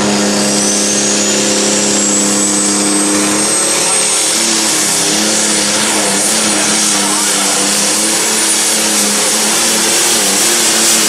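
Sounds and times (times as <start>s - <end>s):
diesel engine at full load: 0.0s - 11.0s
turbo whistle rising: 0.0s - 11.0s.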